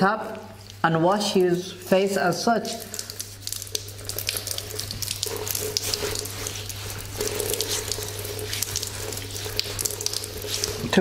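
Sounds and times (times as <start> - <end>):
water running from tap: 0.3 - 11.0
water spatters and drips: 2.6 - 11.0.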